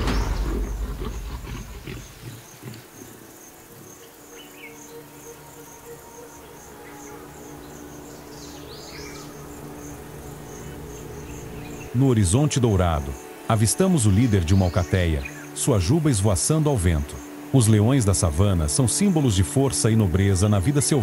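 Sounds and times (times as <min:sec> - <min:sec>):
insect chirping: 0:00.0 - 0:21.0
soft low drone: 0:00.0 - 0:21.0
soundtrack music: 0:04.7 - 0:21.0.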